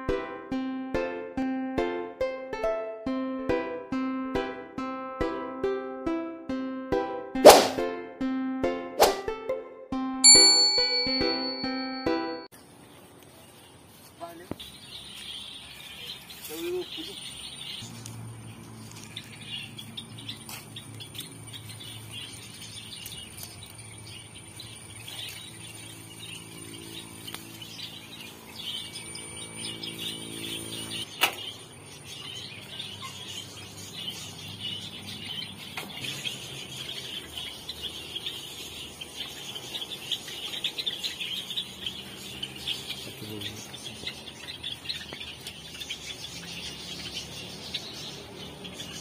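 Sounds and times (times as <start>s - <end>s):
flock of small birds chirping: 12.6s - 49.0s.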